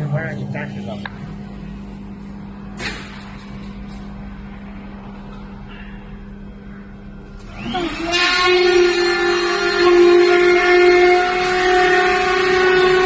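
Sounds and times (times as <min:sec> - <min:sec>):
machine humming: 0:00.0 - 0:13.0
motor whine rising in pitch: 0:06.3 - 0:13.0.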